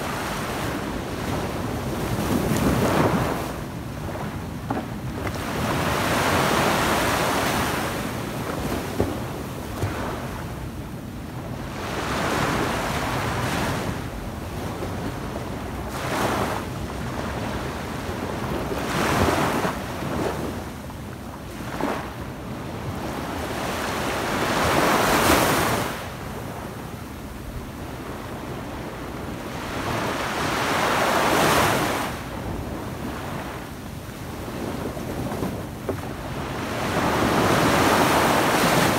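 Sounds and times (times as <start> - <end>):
small waves breaking on sand: 28.0 - 38.9.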